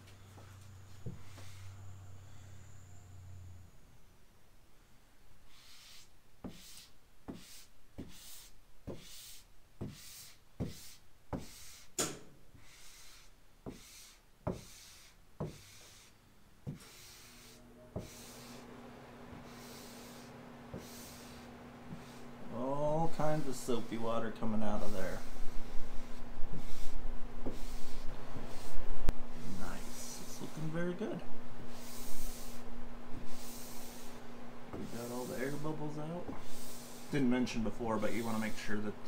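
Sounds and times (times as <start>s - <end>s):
faint steady hum: 0.0s - 39.0s
squeegee swishing on wet decal: 34.8s - 35.8s.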